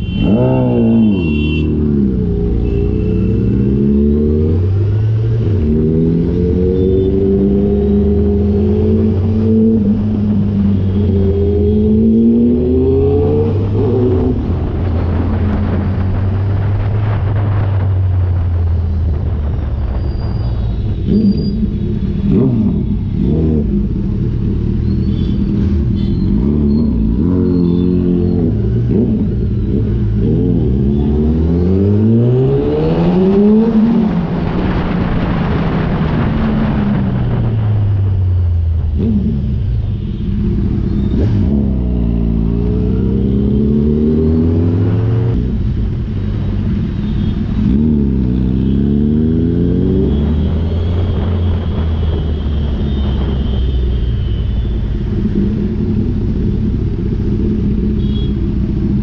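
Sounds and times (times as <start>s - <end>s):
wind rushing over microphone: 11.8s - 24.0s, 31.7s - 39.7s
motorcycle engine accelerating: 21.0s - 39.7s, 40.5s - 45.9s.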